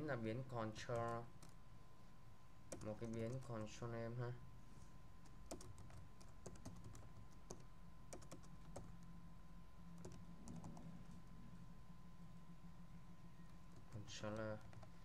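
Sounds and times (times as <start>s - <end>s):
faint keyboard typing: 0.7s - 1.6s, 2.7s - 3.8s, 5.2s - 9.1s, 9.9s - 11.4s, 13.4s - 15.0s.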